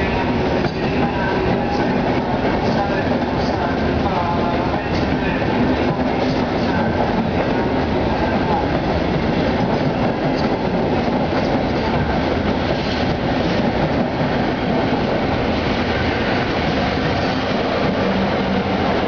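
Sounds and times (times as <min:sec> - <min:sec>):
electric locomotive passing: 0:00.0 - 0:19.0
train wheels clattering over rail joints: 0:08.6 - 0:15.3.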